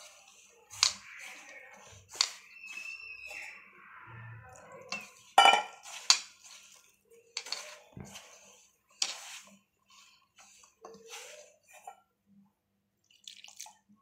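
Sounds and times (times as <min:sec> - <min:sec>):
flour rustling: 0:00.0 - 0:03.7, 0:04.5 - 0:11.9
metal bowl clinking: 0:04.6 - 0:08.1.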